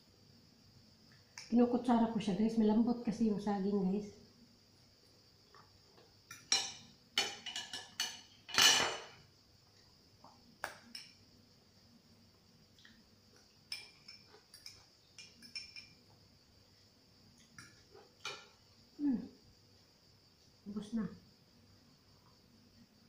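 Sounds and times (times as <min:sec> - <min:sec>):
fork clinking on glass and ceramic: 0:13.7 - 0:16.0.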